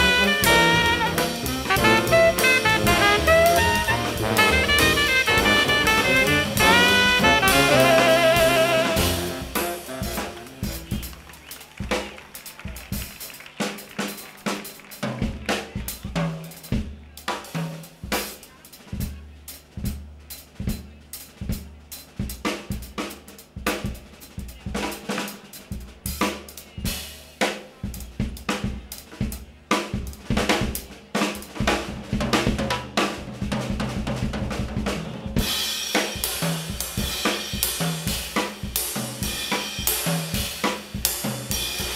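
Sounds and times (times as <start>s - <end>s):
steady cymbal playing: 0.0s - 10.9s
horn chord: 0.0s - 11.2s
jazz drum kit solo: 0.0s - 41.9s.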